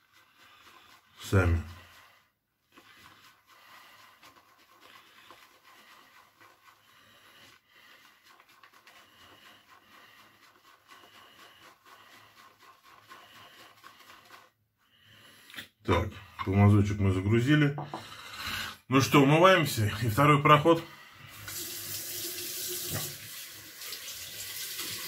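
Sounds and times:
shaving brush swishing: 0.0s - 15.6s.

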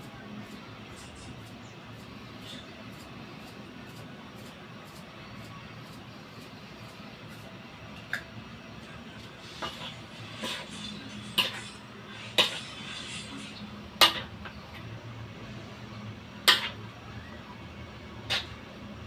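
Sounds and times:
metal spoon clanking on wok: 11.2s - 11.8s, 14.0s - 14.3s, 16.5s - 16.8s.

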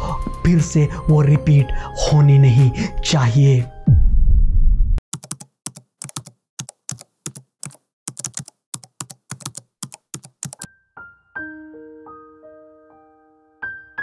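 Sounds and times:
keyboard key clicks: 5.2s - 10.7s.

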